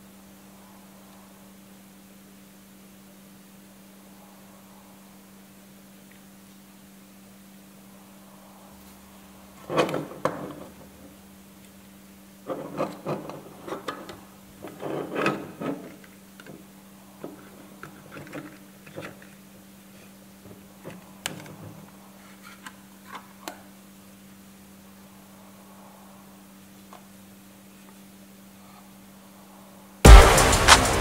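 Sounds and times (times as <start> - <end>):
low hum: 30.0 - 31.0.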